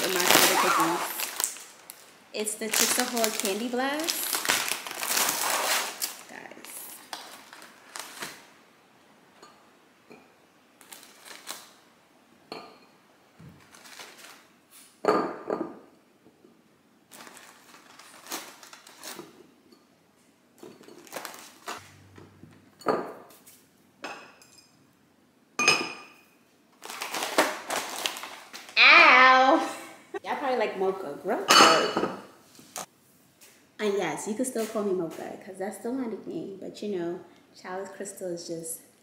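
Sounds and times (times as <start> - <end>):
plastic packaging rustling: 0.0 - 8.6, 10.8 - 11.8, 13.5 - 14.6, 17.1 - 19.4, 20.8 - 22.0, 26.8 - 28.8.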